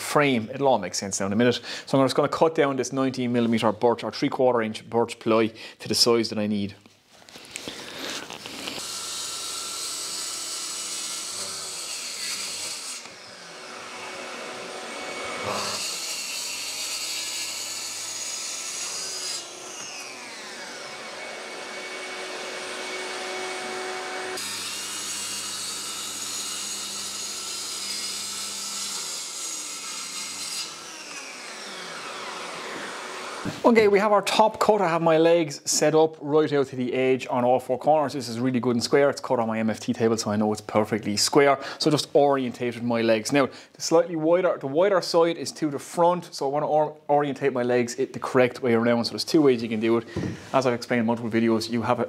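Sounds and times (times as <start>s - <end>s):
track saw cutting plywood: 8.8s - 33.6s.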